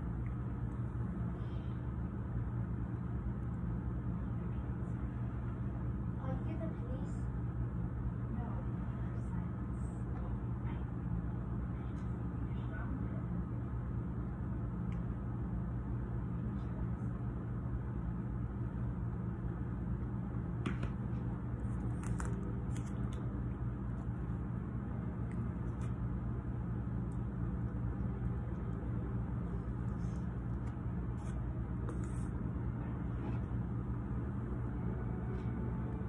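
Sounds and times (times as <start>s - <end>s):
low mechanical hum: 0.0s - 36.0s.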